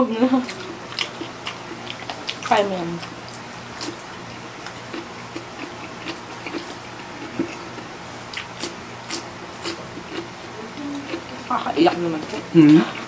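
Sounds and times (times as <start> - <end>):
wet chewing and mouth smacks: 0.4 - 10.4.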